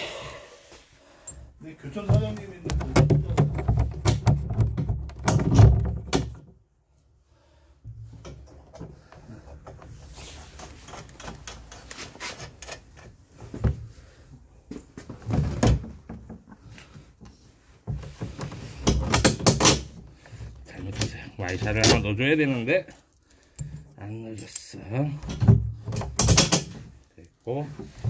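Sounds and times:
tools and parts knocking: 2.0s - 6.6s, 17.9s - 20.1s, 25.2s - 27.0s.

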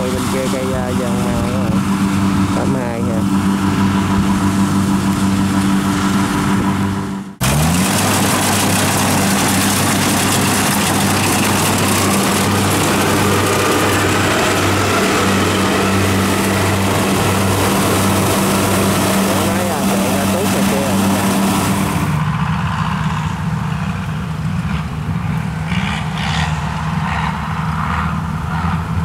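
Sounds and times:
combine harvester engine hum: 0.0s - 29.0s
threshing mechanism: 7.4s - 22.2s.

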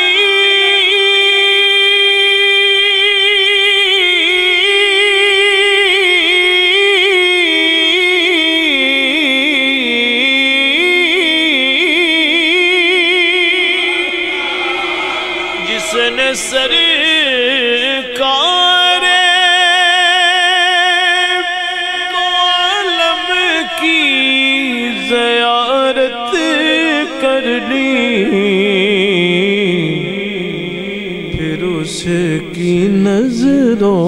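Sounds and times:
man singing melismatic note: 0.0s - 34.0s.

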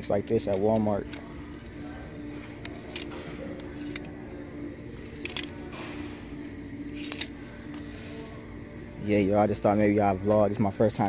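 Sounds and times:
steady low hum: 0.0s - 11.0s
hangers clicking on clothing rack: 2.6s - 4.1s, 5.0s - 6.0s.

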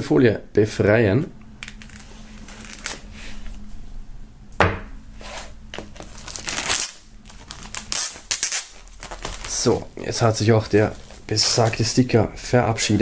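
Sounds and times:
plastic film crinkling: 1.6s - 3.1s, 5.7s - 12.2s.

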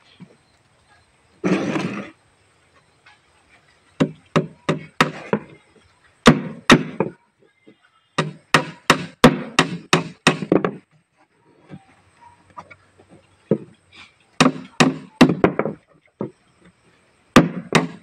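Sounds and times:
hammer striking plywood: 4.0s - 5.5s, 6.2s - 7.1s, 8.2s - 10.8s, 14.4s - 15.8s, 17.4s - 18.0s.

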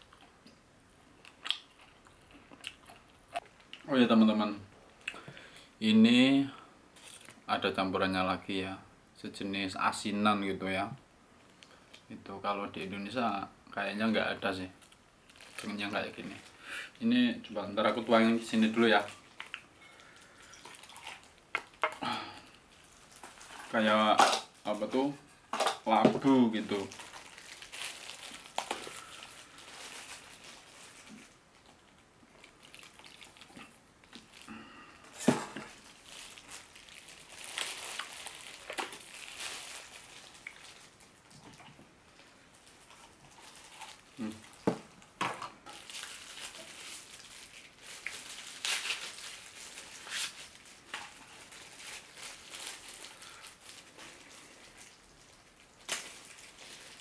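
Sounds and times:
plastic pack crinkling: 14.0s - 57.0s.

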